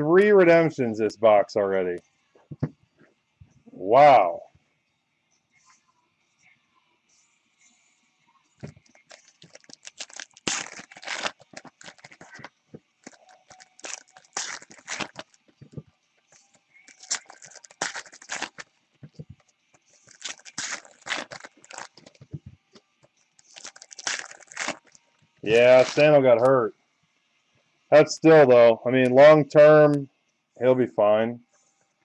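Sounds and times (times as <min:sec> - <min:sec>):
foil wrappers tearing and crinkling: 0:08.7 - 0:15.8, 0:16.4 - 0:18.7, 0:20.0 - 0:22.2, 0:23.4 - 0:26.5.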